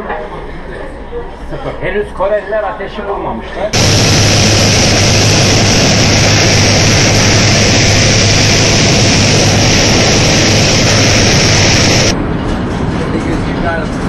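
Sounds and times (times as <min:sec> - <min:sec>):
air rushing: 0:03.8 - 0:12.2
propeller plane engine drone: 0:03.8 - 0:12.2.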